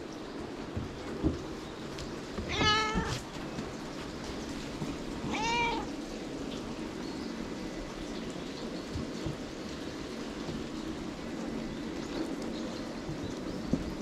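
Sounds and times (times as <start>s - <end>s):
cat meowing: 2.5s - 3.2s, 5.3s - 5.9s.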